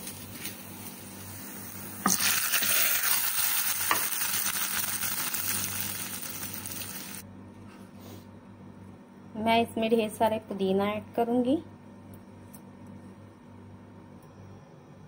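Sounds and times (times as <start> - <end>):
hot oil sizzling: 0.0 - 7.2.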